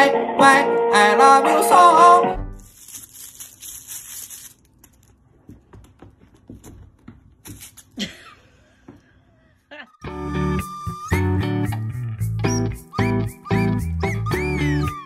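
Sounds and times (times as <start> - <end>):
foil ball toy crinkling: 2.6 - 5.2.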